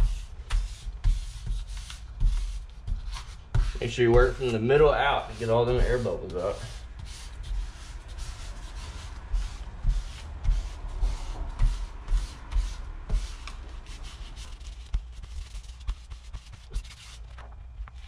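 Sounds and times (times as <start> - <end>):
soft thumps: 0.0 - 13.9
hands rubbing griptape: 0.0 - 17.4.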